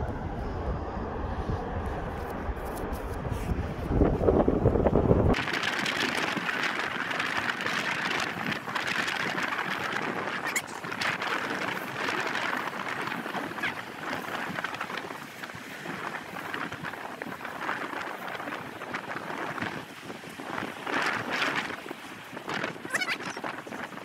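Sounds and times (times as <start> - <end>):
wind buffeting microphone: 0.0 - 24.0
waves washing onto beach: 5.0 - 24.0.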